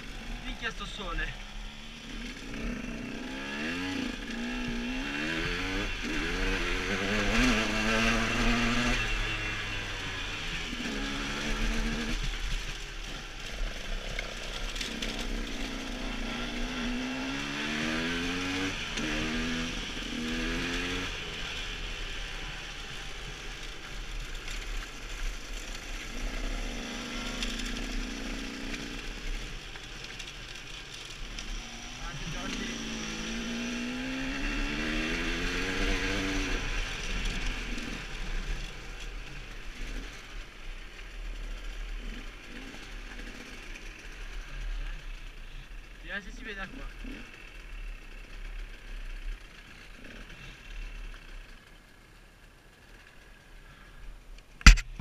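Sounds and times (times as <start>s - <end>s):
motorcycle engine accelerating: 0.0s - 45.8s.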